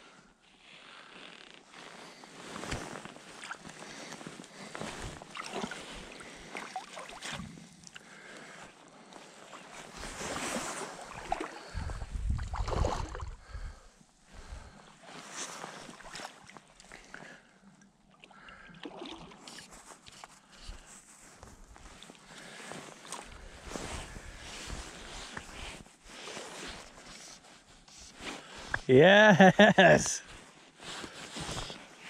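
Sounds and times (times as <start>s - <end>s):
water splashing and sloshing: 2.6s - 8.1s, 9.4s - 13.6s, 15.1s - 17.2s, 18.1s - 20.2s.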